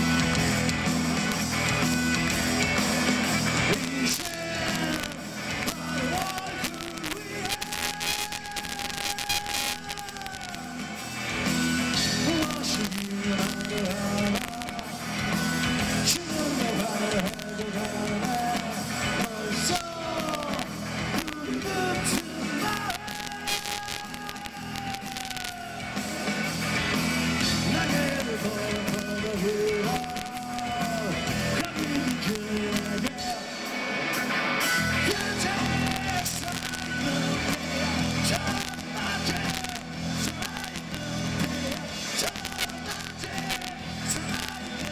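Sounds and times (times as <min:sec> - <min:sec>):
live rock band playing: 0:00.0 - 0:44.9
man singing: 0:03.5 - 0:26.5, 0:27.4 - 0:33.6, 0:34.7 - 0:44.9.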